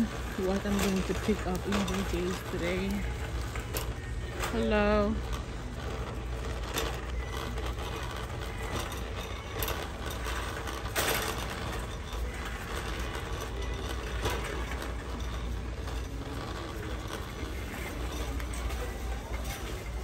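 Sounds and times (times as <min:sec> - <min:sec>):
shopping cart rattling on concrete: 0:00.0 - 0:20.0.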